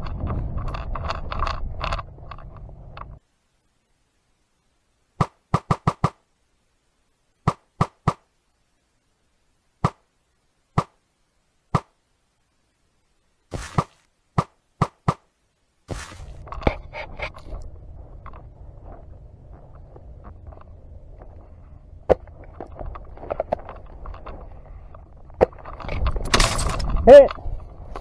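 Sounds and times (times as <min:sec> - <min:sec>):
outdoor background noise: 0:00.0 - 0:28.0.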